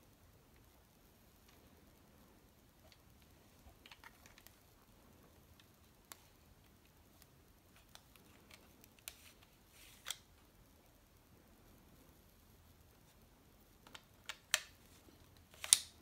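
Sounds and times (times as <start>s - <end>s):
plastic clicks and rattles: 3.7s - 4.6s.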